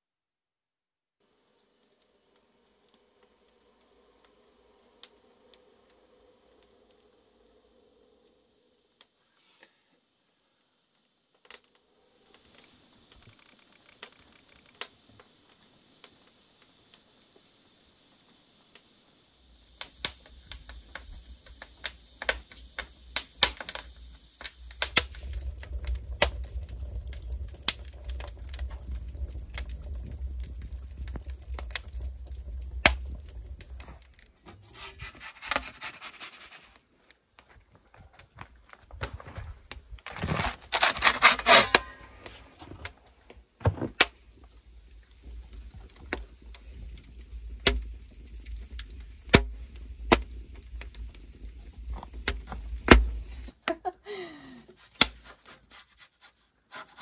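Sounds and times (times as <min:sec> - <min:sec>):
wood fire crackling and popping: 0:01.3 - 0:09.2, 0:10.6 - 0:55.6
low rumble: 0:24.9 - 0:34.4
loud rasping noise: 0:34.6 - 0:36.8, 0:40.1 - 0:41.8.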